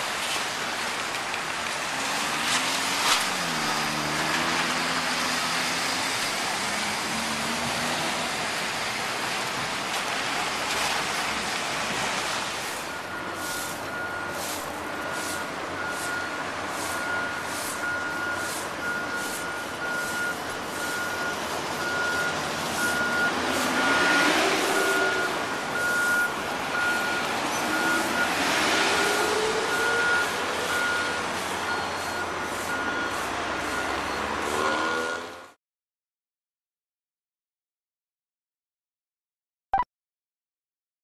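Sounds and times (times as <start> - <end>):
road traffic: 0.0 - 35.6
reversing alarm beeping: 12.7 - 35.4
vehicle passing: 18.4 - 31.8.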